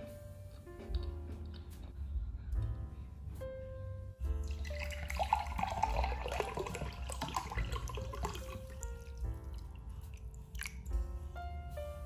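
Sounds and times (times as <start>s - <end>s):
water pouring into glass: 4.4s - 10.9s.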